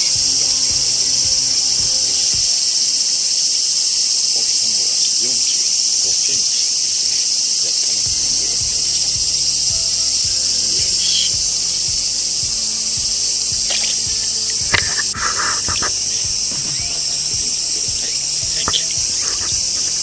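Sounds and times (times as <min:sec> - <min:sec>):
cicadas droning: 0:00.0 - 0:20.0.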